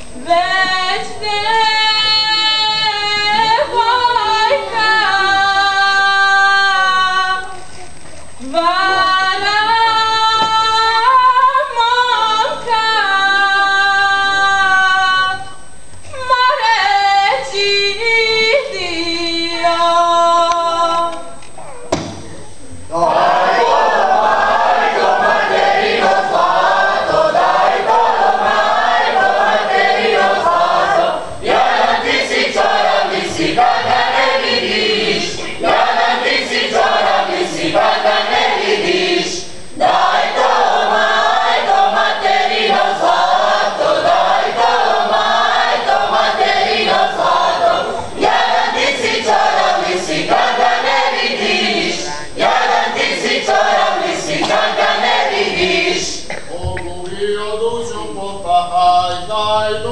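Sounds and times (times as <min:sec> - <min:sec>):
group singing folk song: 0:22.9 - 0:57.9.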